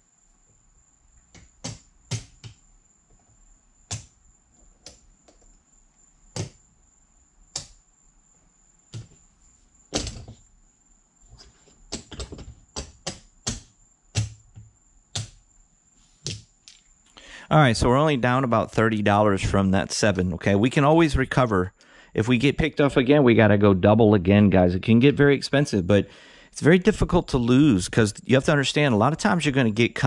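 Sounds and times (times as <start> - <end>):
faint high-pitched whine: 0.0 - 30.0
sharp clicks and knocks: 1.2 - 2.6, 11.4 - 15.4.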